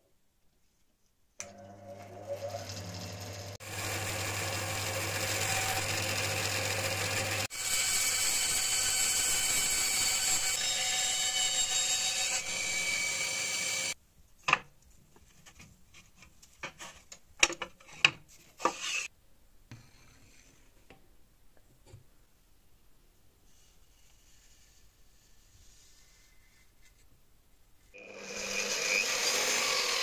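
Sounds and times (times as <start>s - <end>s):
bandsaw cutting wood: 3.6s - 14.0s, 28.0s - 30.0s.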